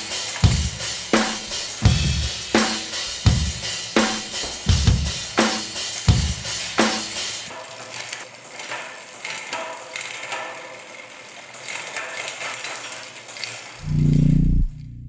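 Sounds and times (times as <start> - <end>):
bicycle freehub ticking: 0.0 - 15.0
low held tones: 13.8 - 15.0.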